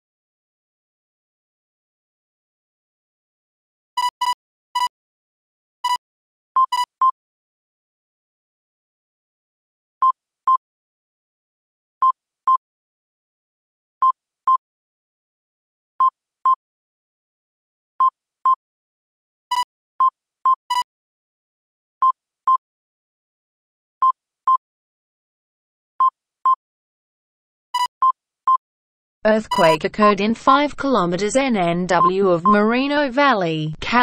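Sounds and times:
electronic double beeps: 0:29.5 - 0:29.8, 0:31.9 - 0:32.6
sharp bright beeps: 0:29.5 - 0:29.8.

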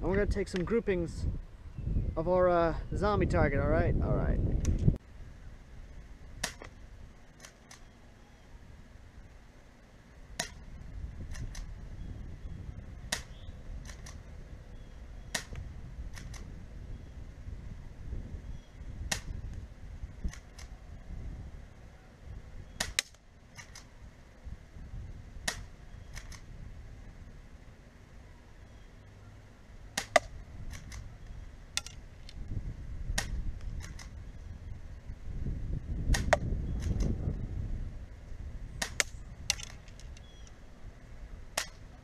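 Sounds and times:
airsoft gun shots clicking: 0:06.4 - 0:06.7, 0:10.4 - 0:10.6, 0:13.1 - 0:14.2, 0:15.3 - 0:16.5, 0:19.1 - 0:19.4, 0:22.8 - 0:23.9, 0:25.4 - 0:26.5, 0:30.0 - 0:31.1, 0:33.1 - 0:34.2, 0:36.1 - 0:37.1, 0:38.8 - 0:40.3, 0:41.5 - 0:41.8
pellets striking target: 0:10.4 - 0:10.6, 0:30.0 - 0:30.4.

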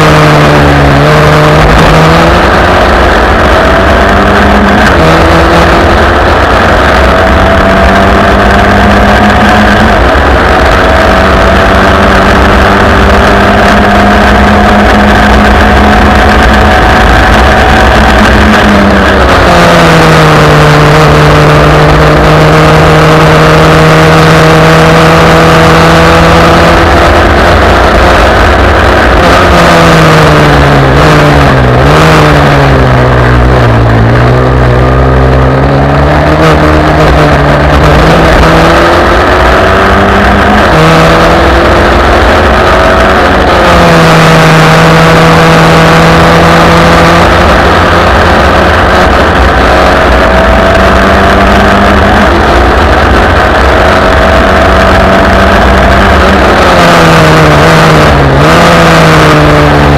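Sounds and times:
racing car engine at high revs: 0:00.0 - 0:59.9.

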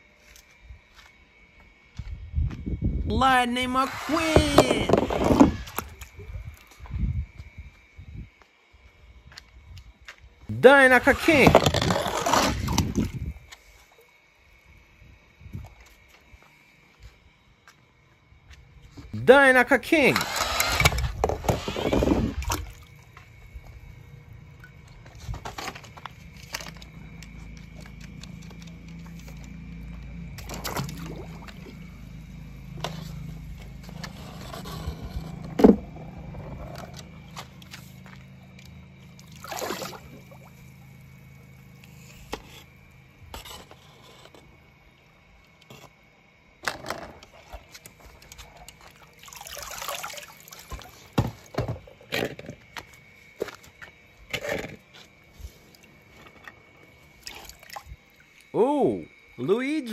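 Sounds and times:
net scraping: 0:11.2 - 0:13.0
low steady hum: 0:20.1 - 0:52.0
pool water sloshing: 0:30.3 - 0:34.7, 0:35.9 - 0:42.2, 0:47.2 - 0:52.0, 0:54.4 - 0:58.5.

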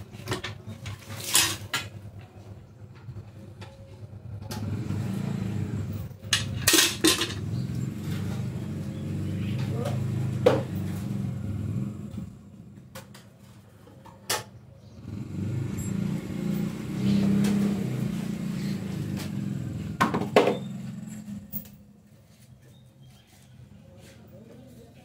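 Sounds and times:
low motor rumble: 0:01.7 - 0:13.1, 0:14.9 - 0:21.9.

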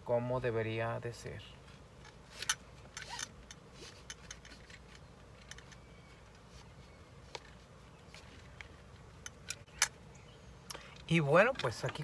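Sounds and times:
seat belt retractor clicks: 0:02.3 - 0:04.8.

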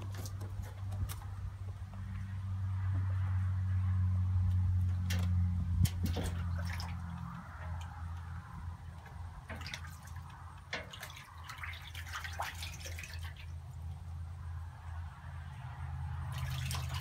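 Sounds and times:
water splashing in a tub: 0:05.1 - 0:14.1, 0:16.2 - 0:17.0.

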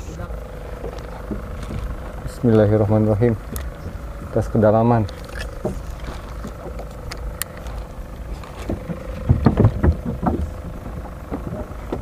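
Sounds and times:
boat engine running: 0:00.0 - 0:12.0
low knocks: 0:08.5 - 0:12.0.

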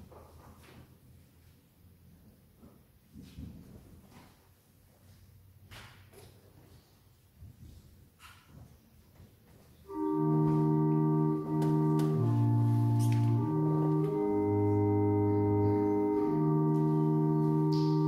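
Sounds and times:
church organ playing chords: 0:09.9 - 0:18.0.

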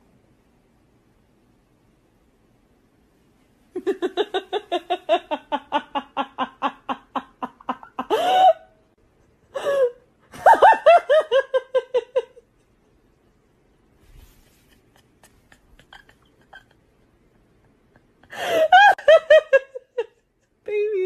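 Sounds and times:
person laughing hard: 0:03.8 - 0:08.7, 0:14.6 - 0:20.2.

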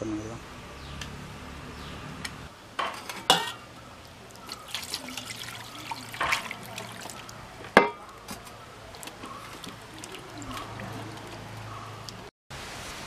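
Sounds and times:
water sloshing in a steel bowl: 0:02.9 - 0:12.3
splashes and knocks against bowl: 0:04.3 - 0:11.5.

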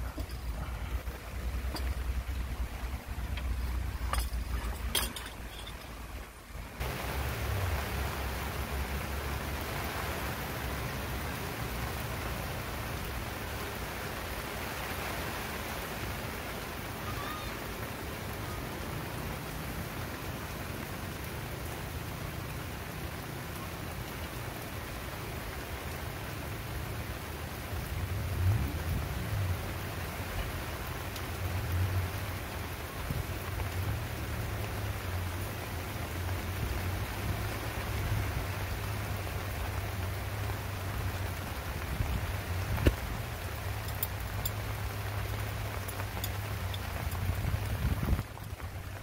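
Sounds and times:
low steady rumble: 0:00.0 - 0:13.6.

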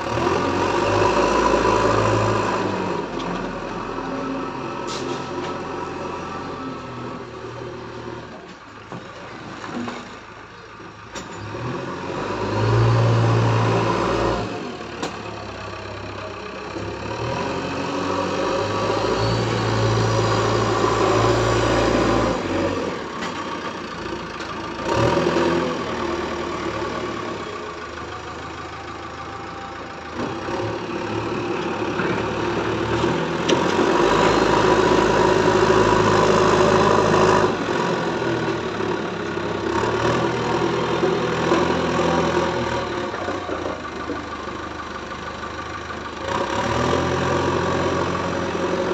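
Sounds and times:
diesel engine revving: 0:00.0 - 0:08.4, 0:11.4 - 0:48.9.

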